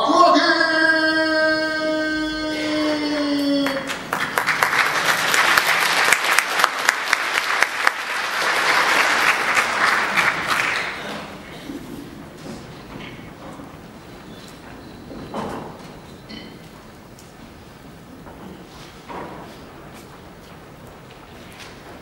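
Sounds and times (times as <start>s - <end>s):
audience applauding: 2.6s - 11.6s.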